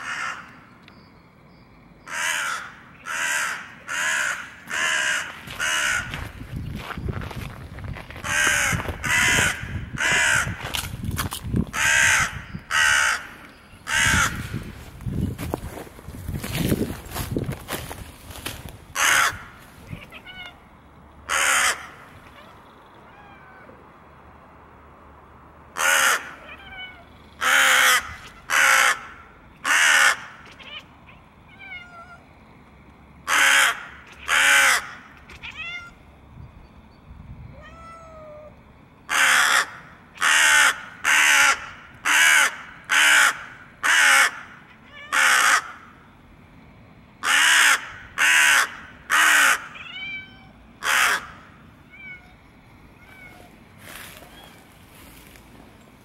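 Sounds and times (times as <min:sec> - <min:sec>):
crow cawing: 0:00.0 - 0:00.5, 0:02.1 - 0:06.3, 0:08.2 - 0:10.6, 0:11.7 - 0:14.4, 0:19.0 - 0:20.6, 0:21.3 - 0:22.6, 0:25.8 - 0:30.8, 0:33.3 - 0:35.9, 0:39.1 - 0:45.9, 0:47.2 - 0:50.0, 0:50.8 - 0:51.6.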